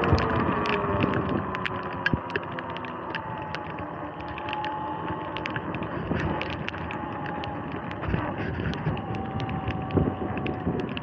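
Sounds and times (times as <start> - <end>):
light ticks: 0.0 - 11.0
electric motor whine: 3.1 - 11.0.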